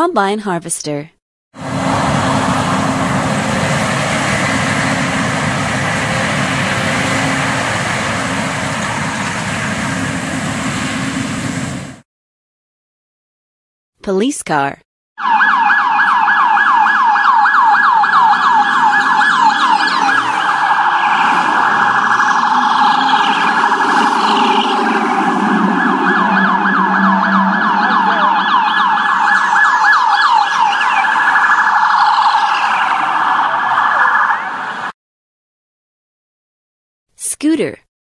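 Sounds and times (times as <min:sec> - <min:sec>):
police siren yelping: 0:15.2 - 0:34.9.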